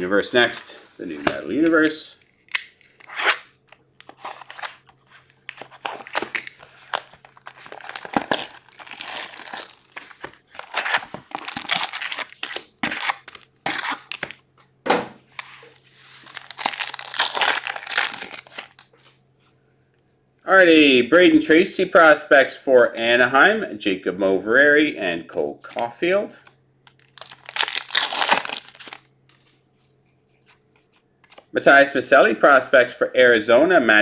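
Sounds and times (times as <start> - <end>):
card packs tearing: 2.8 - 14.4, 16.2 - 18.9, 26.9 - 29.1
plastic wrap crinkling: 4.1 - 14.4, 15.3 - 19.1, 26.8 - 29.6.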